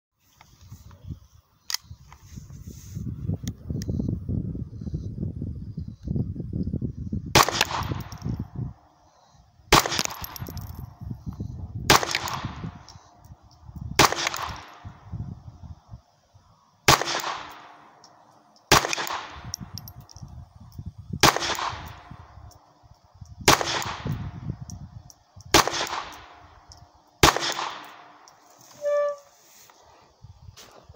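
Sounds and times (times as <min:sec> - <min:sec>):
pistol shots: 0:07.4 - 0:08.2, 0:09.7 - 0:10.7, 0:14.0 - 0:14.8, 0:16.9 - 0:17.8, 0:18.7 - 0:19.5, 0:21.2 - 0:22.0, 0:23.5 - 0:24.2, 0:25.5 - 0:26.4, 0:27.2 - 0:28.1.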